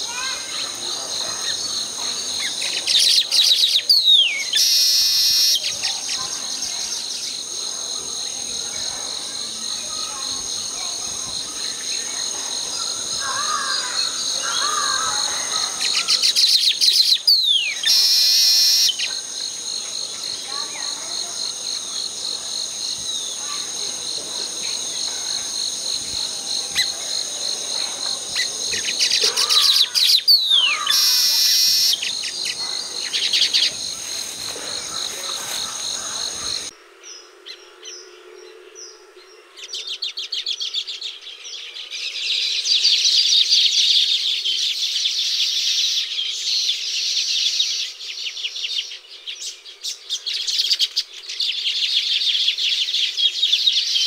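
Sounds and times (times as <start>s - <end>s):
high-pitched insect drone: 0.0s - 36.8s
bird song with ticks and whistle: 2.5s - 5.8s, 15.8s - 19.2s, 28.8s - 32.3s.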